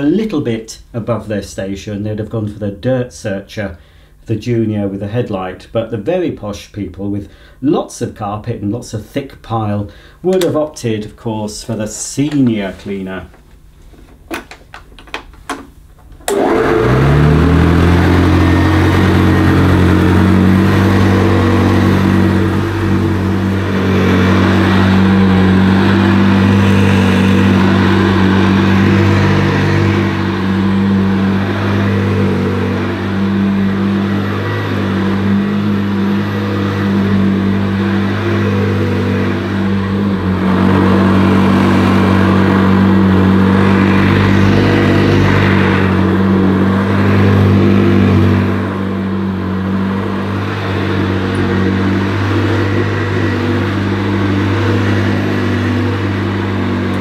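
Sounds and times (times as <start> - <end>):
upright vacuum cleaner humming: 12.2 - 57.0.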